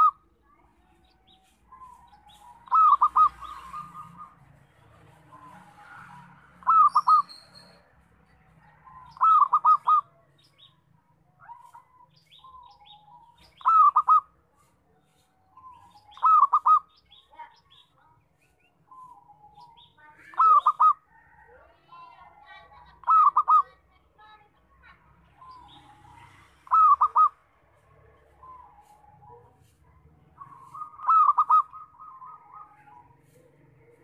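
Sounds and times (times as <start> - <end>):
small birds chirping: 0.0 - 34.0
dove cooing: 2.0 - 4.4, 5.3 - 7.4, 8.8 - 10.1, 12.4 - 14.3, 15.7 - 16.9, 18.9 - 21.4, 22.8 - 23.8, 25.4 - 27.4, 30.4 - 33.1.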